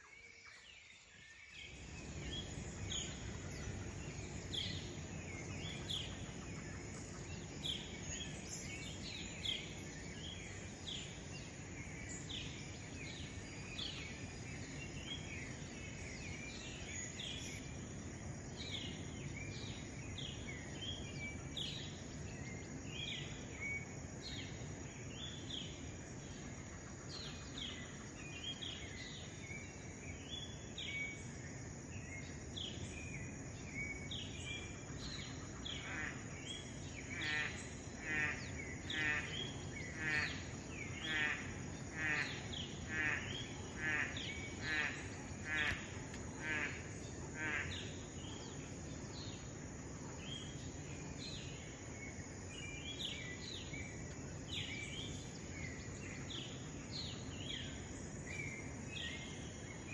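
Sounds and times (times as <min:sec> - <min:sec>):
background hiss: 0:00.1 - 0:59.9
birds calling: 0:34.6 - 0:48.6.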